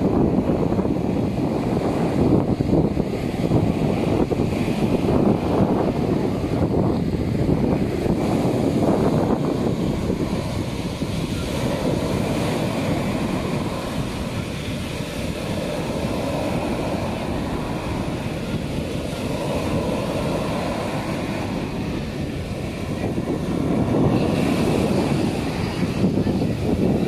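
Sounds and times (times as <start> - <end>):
waves breaking on sand: 0.0 - 27.0
wind buffeting microphone: 0.0 - 27.0.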